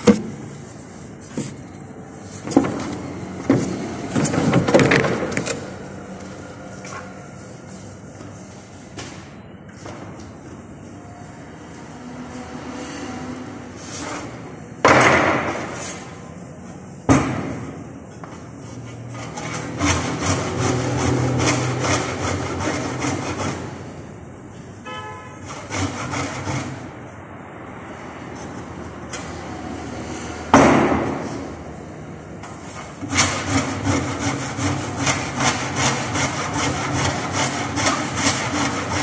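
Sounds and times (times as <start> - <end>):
handsaw cutting wood: 19.0 - 23.8, 25.5 - 26.9, 32.7 - 39.0.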